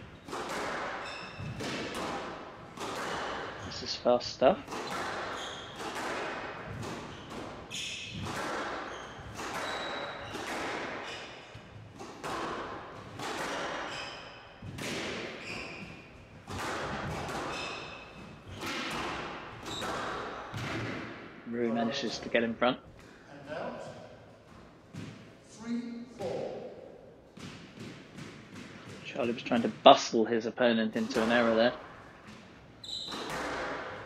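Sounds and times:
shoes squeaking on court floor: 0:00.0 - 0:21.1, 0:30.9 - 0:34.0
squash ball impacts: 0:00.0 - 0:23.2, 0:24.4 - 0:25.4, 0:26.2 - 0:30.0, 0:31.0 - 0:34.0.

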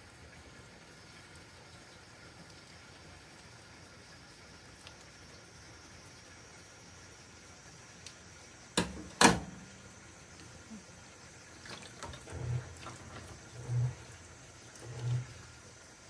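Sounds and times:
sharp knocks: 0:08.8 - 0:09.6.

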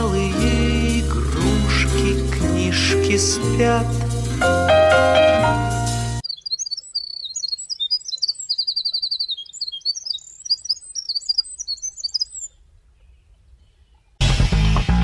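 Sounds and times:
wren singing: 0:06.2 - 0:12.6.

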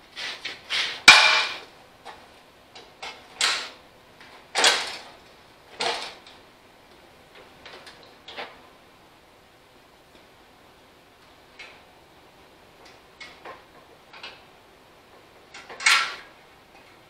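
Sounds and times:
sharp knock: 0:01.1 - 0:01.6.

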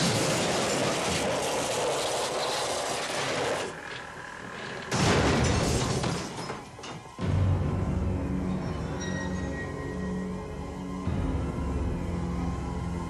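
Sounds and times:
car crashing: 0:04.8 - 0:07.2.

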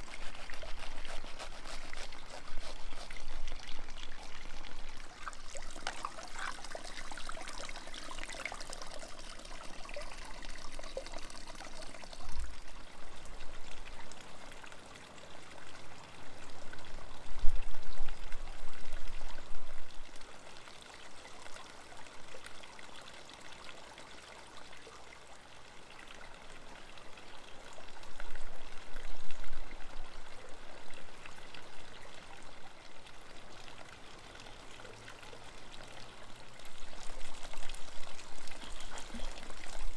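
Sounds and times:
water running: 0:05.0 - 0:12.2.

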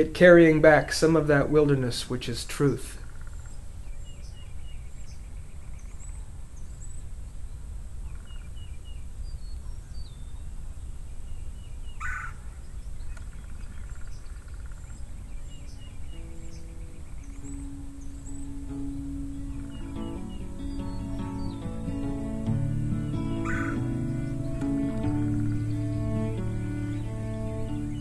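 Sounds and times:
small birds chirping: 0:02.6 - 0:28.0
soft guitar music: 0:16.0 - 0:28.0
rattling bird call: 0:23.4 - 0:23.8.

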